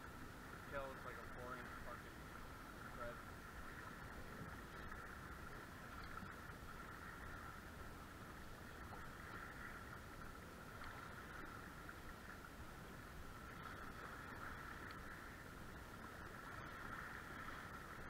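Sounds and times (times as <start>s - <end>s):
choppy water: 0.0s - 18.0s
faint high hum: 0.0s - 18.0s
wind: 0.0s - 18.0s.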